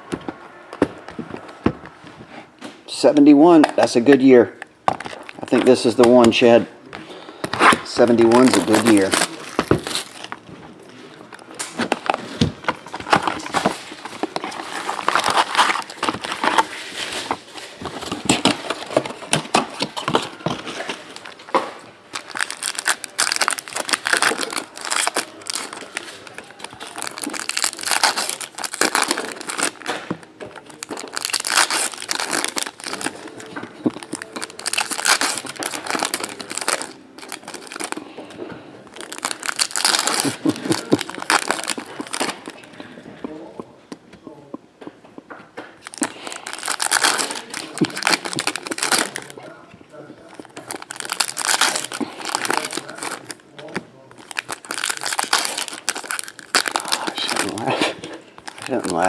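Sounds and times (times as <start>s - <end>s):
foil packs tearing and crinkling: 7.6s - 10.4s, 11.3s - 42.7s, 45.8s - 49.4s, 50.3s - 59.0s.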